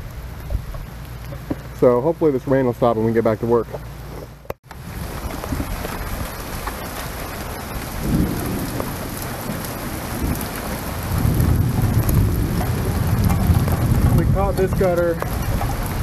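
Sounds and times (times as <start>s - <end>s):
low rumbles: 0.0s - 16.0s
rain falling: 0.0s - 16.0s.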